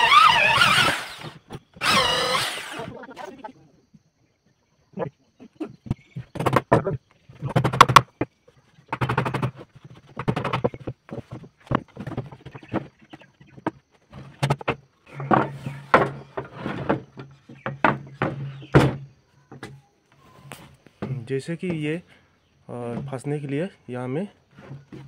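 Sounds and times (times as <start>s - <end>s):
wooden knocks and clatter: 5.8s - 19.9s, 24.5s - 25.0s.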